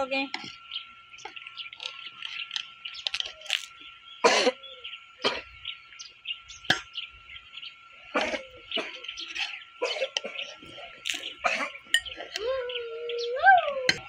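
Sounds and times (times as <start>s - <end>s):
person coughing: 4.2s - 4.6s, 8.1s - 9.1s, 9.8s - 10.5s, 11.4s - 11.8s
steel ladle scraping steel pot: 9.1s - 12.4s.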